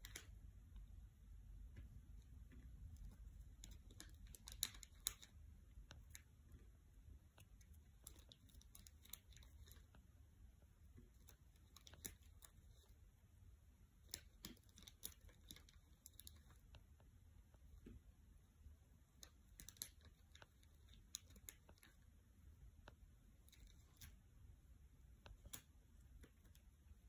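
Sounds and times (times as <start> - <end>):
low room hum: 0.0 - 27.0.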